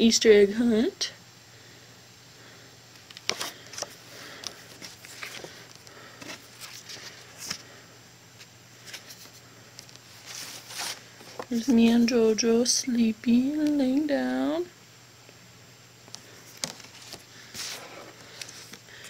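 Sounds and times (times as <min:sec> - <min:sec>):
photo prints rustling: 0:03.0 - 0:07.8, 0:08.4 - 0:12.1, 0:16.1 - 0:19.0.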